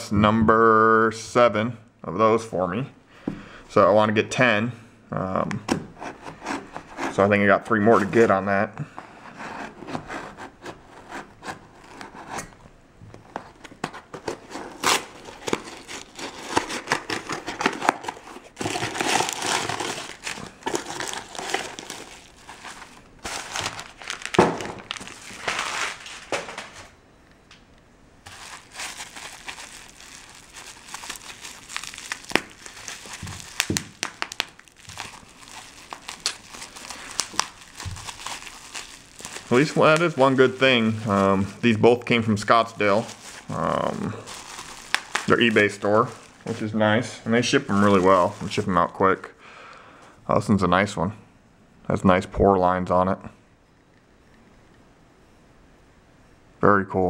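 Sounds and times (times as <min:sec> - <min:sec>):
packing material rustling: 0:13.2 - 0:27.0, 0:28.2 - 0:49.2
sharp crackles: 0:28.2 - 0:42.0, 0:42.8 - 0:46.7.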